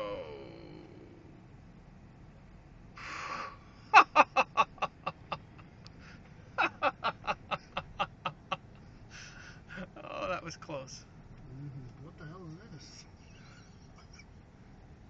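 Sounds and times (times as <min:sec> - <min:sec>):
person laughing hard: 0:03.9 - 0:05.5, 0:06.6 - 0:08.6.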